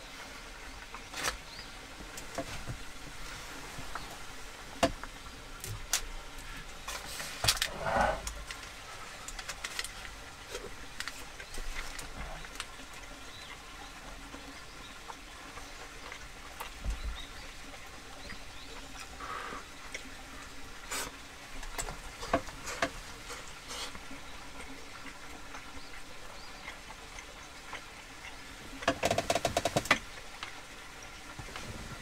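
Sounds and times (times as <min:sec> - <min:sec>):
chewing rice: 0:07.5 - 0:17.3, 0:22.6 - 0:28.9.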